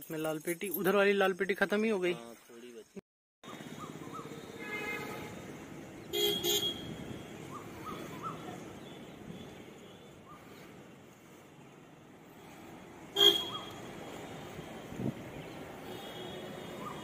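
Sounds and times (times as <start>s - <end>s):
traffic hum: 3.4s - 17.0s
vehicle horn toots: 4.5s - 5.4s, 6.1s - 7.2s, 13.1s - 13.7s.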